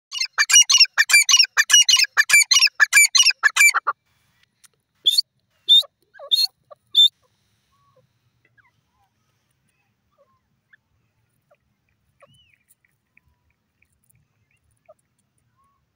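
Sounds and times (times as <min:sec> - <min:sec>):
francolin calling: 0:00.1 - 0:04.0, 0:05.0 - 0:09.2.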